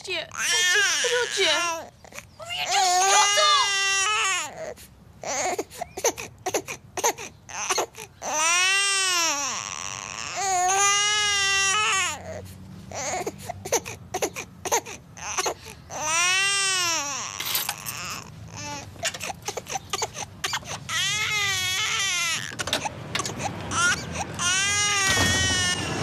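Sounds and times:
baby crying: 0.3s - 26.0s
baby gasping: 12.3s - 16.0s, 17.8s - 21.0s, 22.6s - 24.5s.

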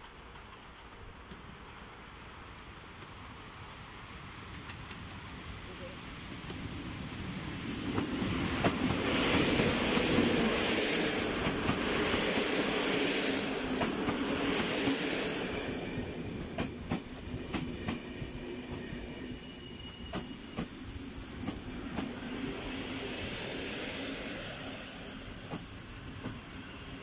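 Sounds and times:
wheels clicking over rail joints: 0.0s - 5.4s
electric locomotive passing: 0.0s - 27.0s
train coaches rumbling: 0.0s - 27.0s
faint high brake squeal: 17.8s - 21.7s, 22.6s - 26.9s.

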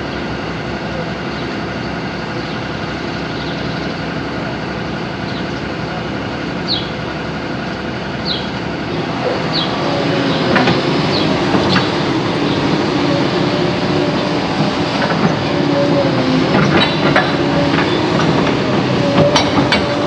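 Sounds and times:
excavator diesel engine running: 0.0s - 20.0s
metallic clanks: 16.5s - 20.0s.

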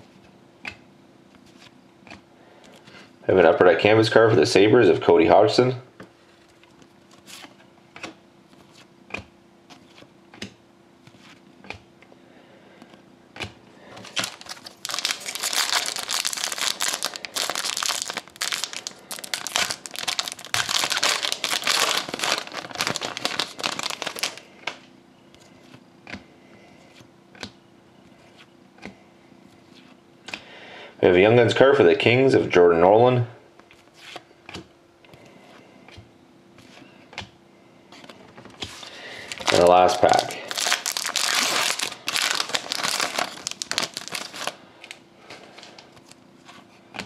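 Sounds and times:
card pack wrapper tearing: 14.0s - 24.4s, 38.8s - 45.0s.

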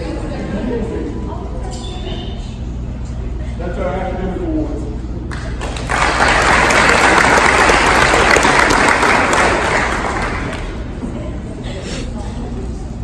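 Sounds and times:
audience applauding: 5.3s - 10.9s.

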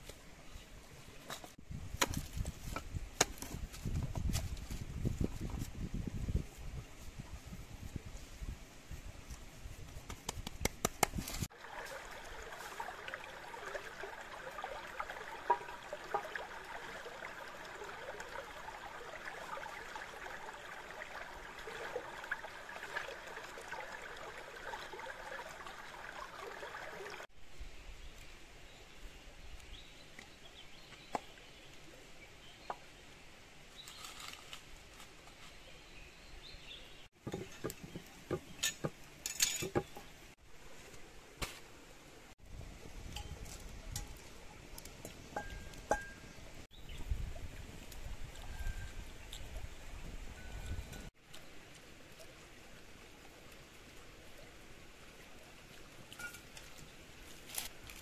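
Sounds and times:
stream running over rocks: 11.0s - 27.4s, 37.0s - 58.0s.

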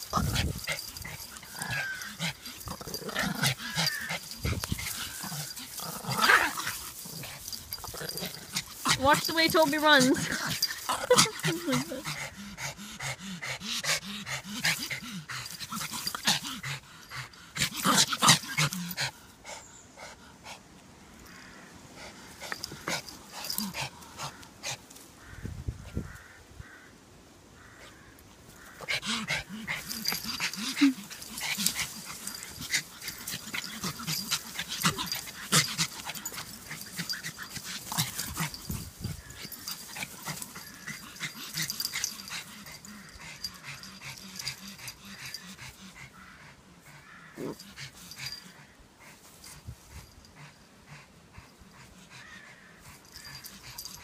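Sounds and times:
small dogs growling: 0.0s - 19.6s, 22.0s - 25.0s, 28.6s - 54.0s.

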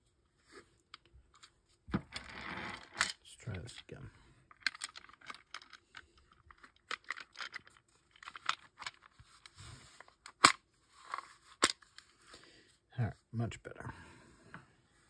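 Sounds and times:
plastic parts clicking and rattling: 0.8s - 12.1s.

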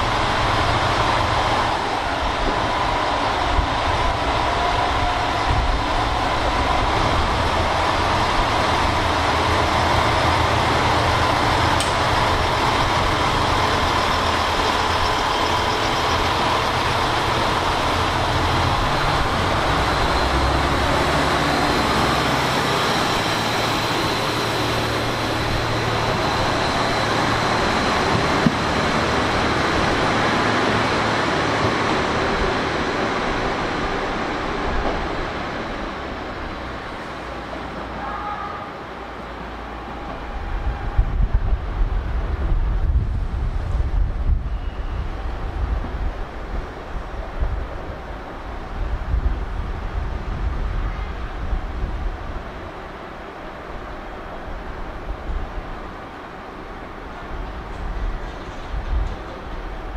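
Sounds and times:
diesel railcar engines running: 0.0s - 59.9s.

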